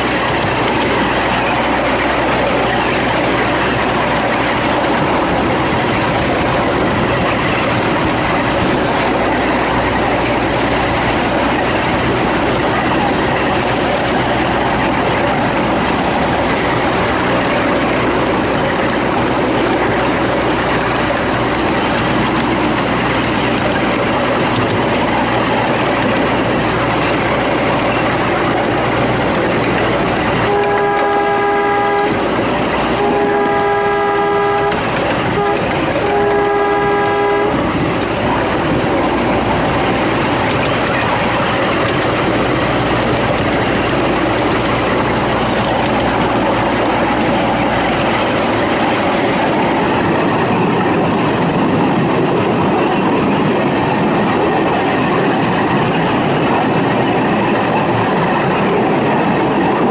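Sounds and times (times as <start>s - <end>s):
train wheels clattering on rails: 0.0s - 59.9s
steam whistle blasts: 30.5s - 32.2s, 33.0s - 34.8s, 35.4s - 37.6s.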